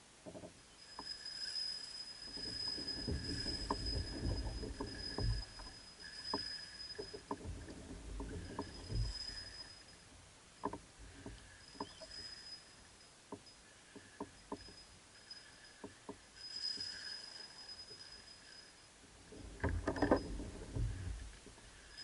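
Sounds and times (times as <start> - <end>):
faint high-pitched whine: 0.0 - 22.0
kayak hull rumbling and knocks: 0.2 - 0.6, 2.3 - 9.7, 10.6 - 12.1, 19.3 - 22.0
water against hull: 0.2 - 22.0.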